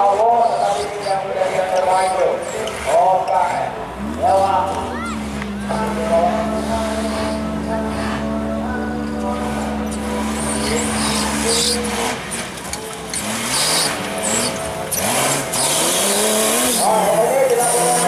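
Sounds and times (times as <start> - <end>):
off-road vehicle engines revving: 0.0 - 18.0
steady droning tone: 3.2 - 15.6.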